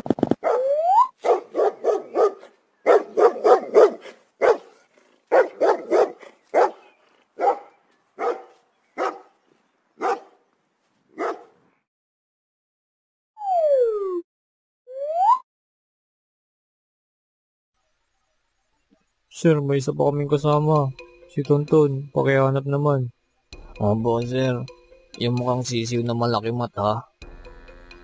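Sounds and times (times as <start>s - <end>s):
dog barking: 0.4s - 9.4s, 10.0s - 10.4s, 11.1s - 11.6s.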